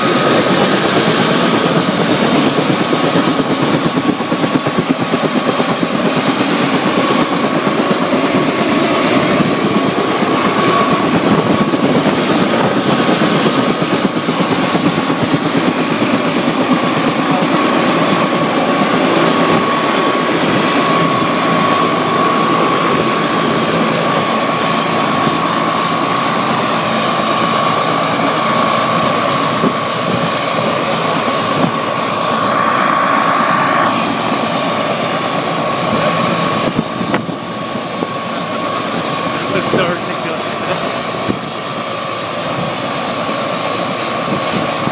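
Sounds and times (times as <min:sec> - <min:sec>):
helicopter rotor and turbine drone: 0:00.0 - 0:44.9
high whine: 0:27.3 - 0:40.5.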